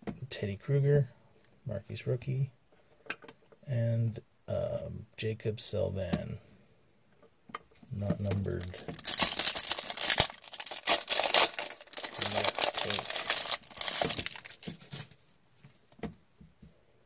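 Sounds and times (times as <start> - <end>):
foil wrapper tearing and crinkling: 8.4 - 15.0.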